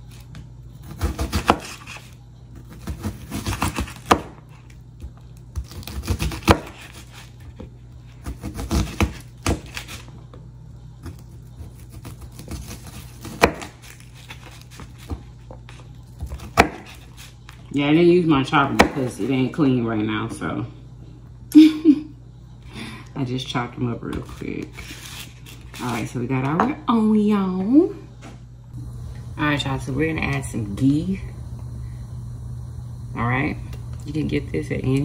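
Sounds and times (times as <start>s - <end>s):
knife chopping onion: 0.0s - 10.0s, 11.0s - 17.5s, 18.6s - 19.4s.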